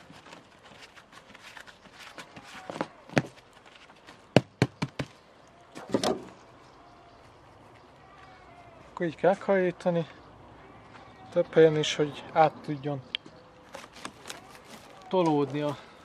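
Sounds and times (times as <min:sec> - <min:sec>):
rustling scrape: 0:00.0 - 0:04.2.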